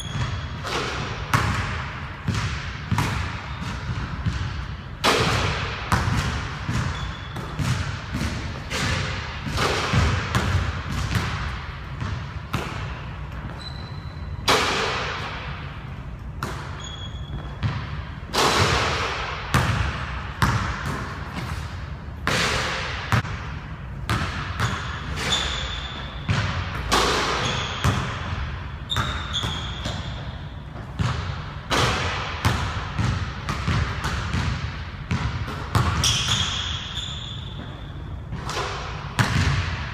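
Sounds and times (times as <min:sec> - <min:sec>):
basketball bouncing on wooden floor: 0:00.0 - 0:15.6, 0:16.4 - 0:21.1, 0:24.1 - 0:39.9
short high squeaks: 0:13.5 - 0:14.4, 0:16.8 - 0:17.5, 0:25.2 - 0:26.2, 0:36.0 - 0:37.9.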